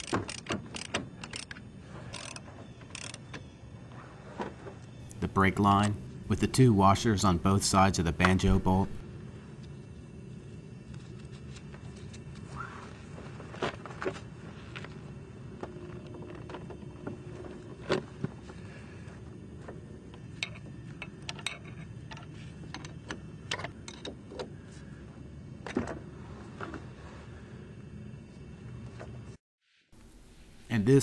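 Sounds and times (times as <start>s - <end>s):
wrench metallic clicks: 0.0s - 3.2s
low hum: 0.0s - 29.4s.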